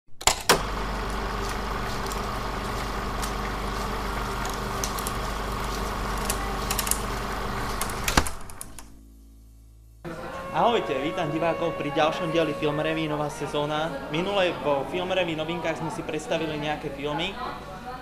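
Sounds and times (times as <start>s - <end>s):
film projector whirring: 0.2s - 8.9s
projector clicks and crackle: 0.3s - 9.0s.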